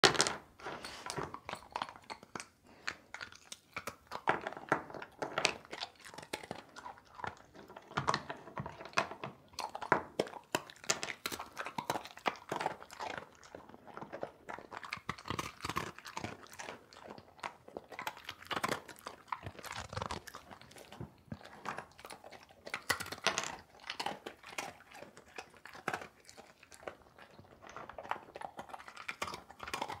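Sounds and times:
squirrel gnawing food: 1.2 - 30.0.

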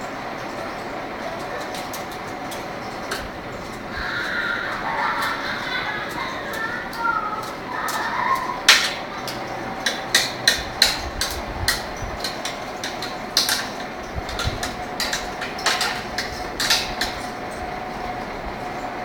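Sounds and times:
sharp clicks and knocks: 8.6 - 17.6.

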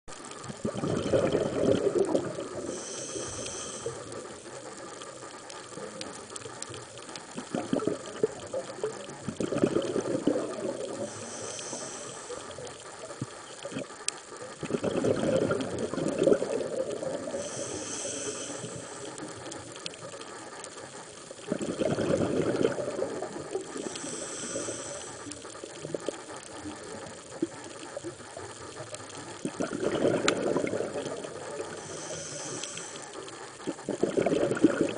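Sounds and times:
exhaled bubbles underwater: 0.1 - 34.9
regulator inhalation hiss: 2.1 - 9.2, 10.8 - 14.6, 16.6 - 21.4, 22.9 - 29.4, 31.1 - 33.8.

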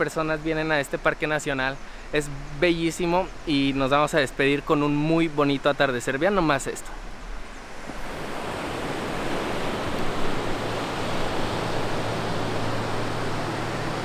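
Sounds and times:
waves breaking on beach: 6.1 - 14.0.

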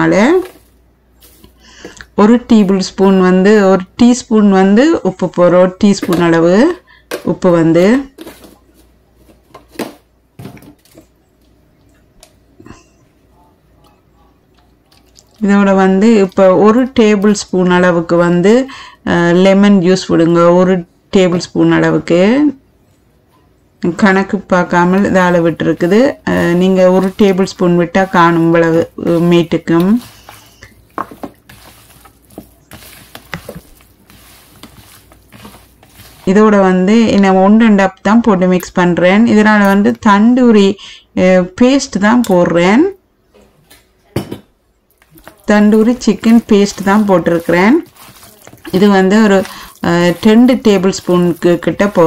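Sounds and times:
faint low hum: 0.0 - 31.0
hand squelching raw chicken: 25.3 - 36.3, 45.0 - 52.0.

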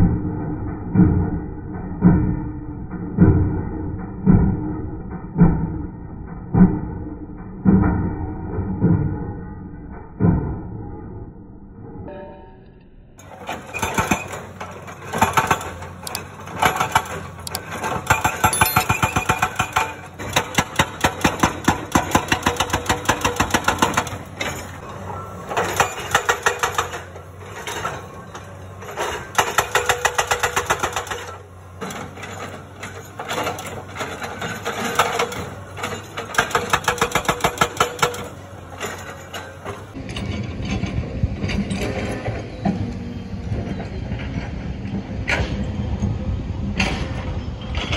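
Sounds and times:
hydraulic breaker hammering rock: 13.2 - 43.0.

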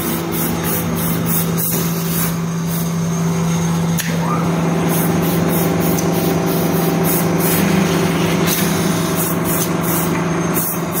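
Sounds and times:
lathe machine hum: 2.3 - 11.0.

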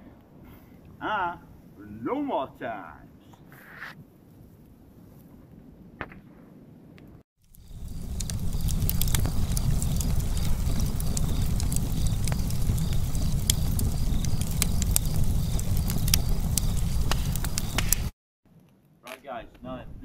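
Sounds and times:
logs crackling and popping: 7.4 - 18.2
wood fire burning: 7.4 - 18.2.

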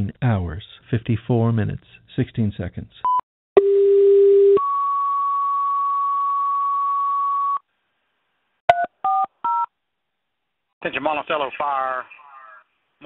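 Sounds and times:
two-tone radio page: 10.8 - 12.9.

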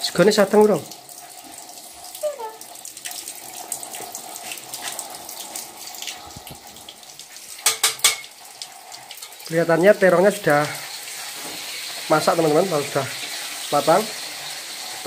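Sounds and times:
eggplant sizzling in hot oil: 3.9 - 15.0
utensil clacking on metal pan: 7.6 - 8.4.

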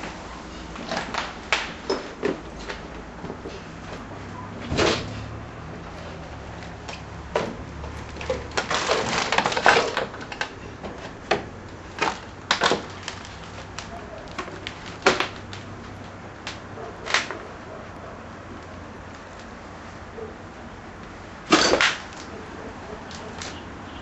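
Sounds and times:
objects rattling and creaking: 0.0 - 17.6.

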